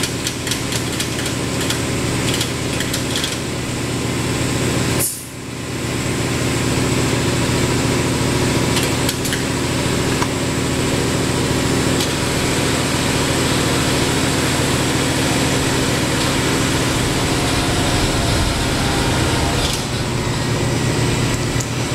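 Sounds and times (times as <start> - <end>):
pneumatic system humming: 11.6 - 21.9.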